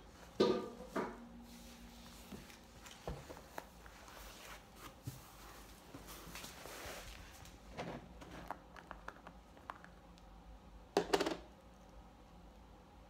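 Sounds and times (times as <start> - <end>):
objects knocking on table: 11.0 - 11.4.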